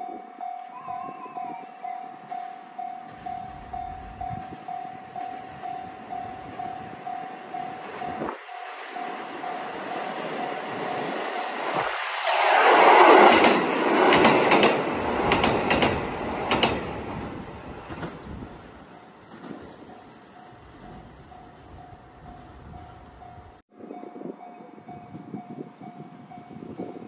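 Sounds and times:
level crossing bell ringing: 0.0 - 11.1
diesel train passing: 1.8 - 27.0
train wheels clicking over rail joints: 7.6 - 21.2.

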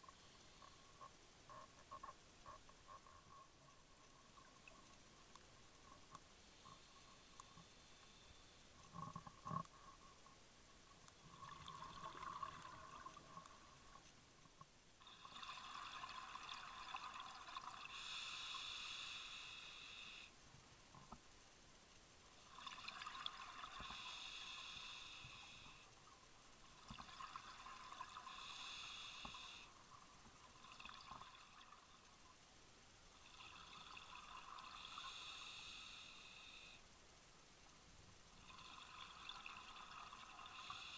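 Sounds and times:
regulator inhalation hiss: 6.4 - 8.7, 17.8 - 20.4, 23.7 - 26.0, 28.2 - 29.8, 34.6 - 36.8, 40.3 - 40.9.

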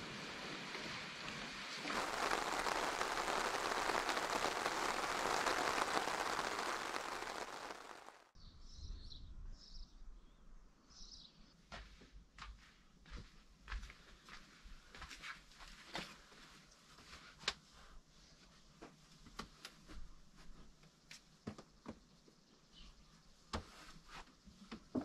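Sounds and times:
steady rain falling: 0.0 - 8.3.

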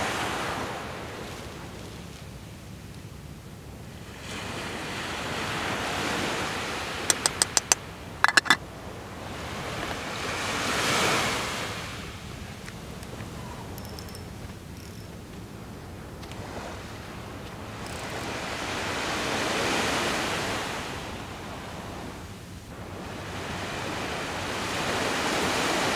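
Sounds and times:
waves breaking on shore: 0.0 - 2.8, 3.8 - 25.9
metal pot lid clattering: 7.1 - 8.6.

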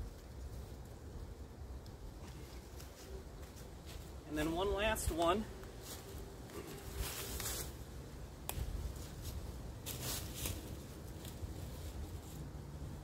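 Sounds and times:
dry leaves rustling: 5.1 - 7.8, 8.6 - 12.6.

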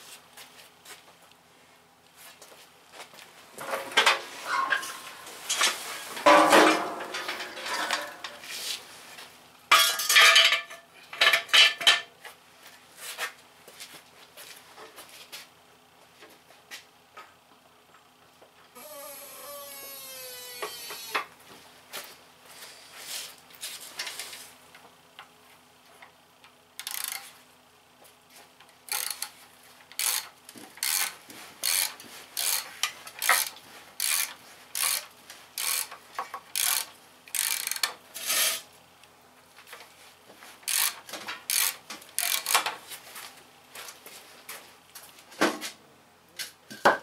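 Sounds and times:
ratchet wrench clicking: 26.8 - 27.3, 28.9 - 38.5, 40.6 - 42.7.

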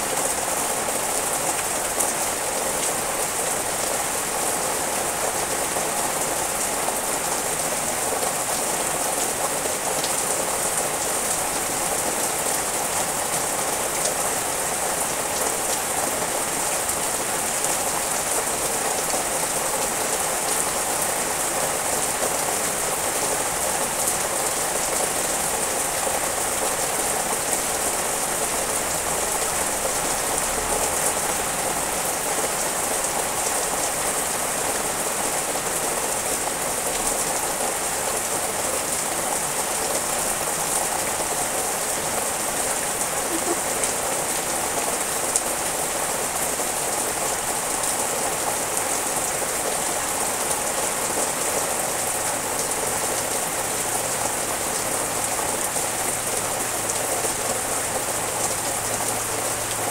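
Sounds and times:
rain falling on trees: 0.0 - 59.9.

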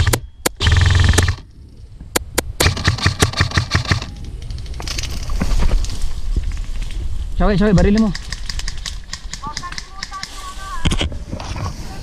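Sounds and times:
airsoft rifle firing: 0.0 - 1.4, 2.2 - 4.1
gearbox buzz: 0.0 - 1.4.

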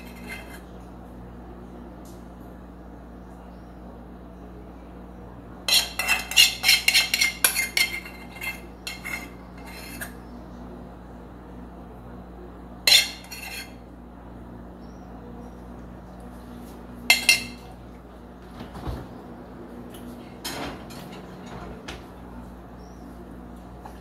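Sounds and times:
spoon clinking against a dish: 5.7 - 10.1, 12.9 - 13.7, 17.1 - 17.6.

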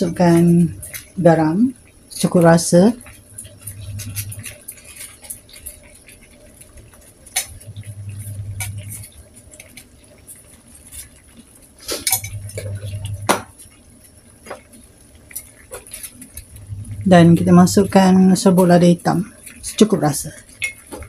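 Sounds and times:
utensils clinking against dishes: 11.8 - 13.2, 20.4 - 21.0.

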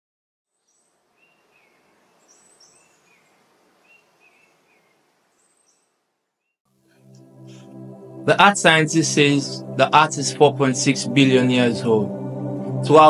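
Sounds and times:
small birds chirping: 0.5 - 6.6.

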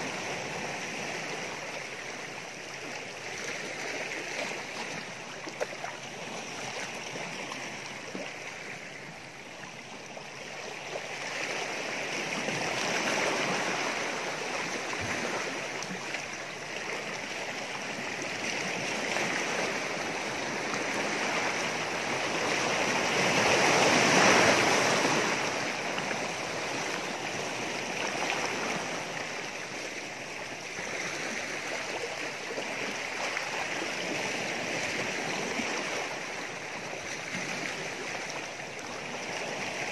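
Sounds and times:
waves washing over rocks: 0.0 - 39.9.

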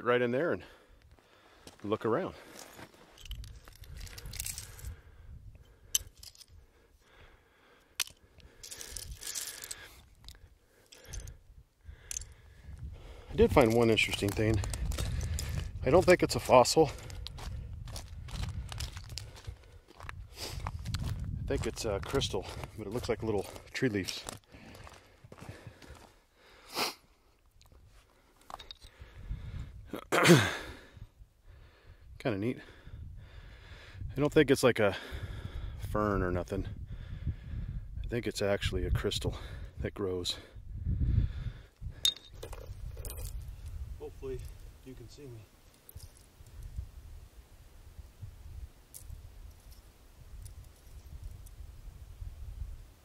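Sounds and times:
stone fragments clinking and scraping: 2.6 - 4.8, 8.0 - 9.9
man sniffing: 26.5 - 27.1.

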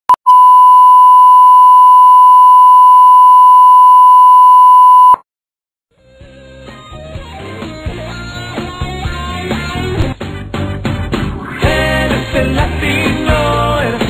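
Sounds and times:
steady test tone beep: 0.2 - 5.2
music: 5.9 - 14.0.

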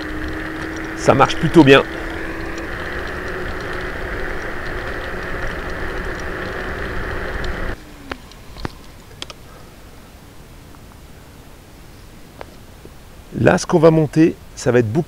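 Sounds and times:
faint steady hum: 0.0 - 15.0
wind and tyre noise: 0.0 - 15.0
faint clicks: 0.2 - 9.5.

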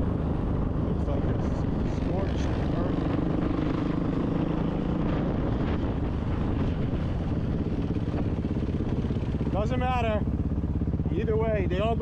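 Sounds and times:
dirt bike engine running: 0.0 - 12.0.

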